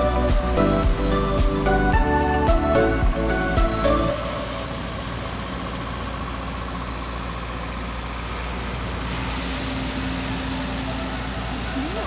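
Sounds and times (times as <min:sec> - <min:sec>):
tractor engine humming: 0:00.0 - 0:12.0.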